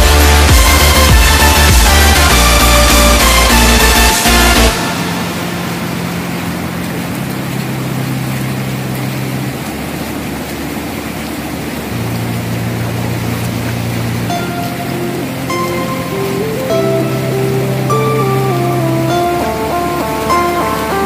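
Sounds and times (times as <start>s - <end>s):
rushing whitewater: 0.1s - 21.0s
low held background notes: 4.7s - 21.0s.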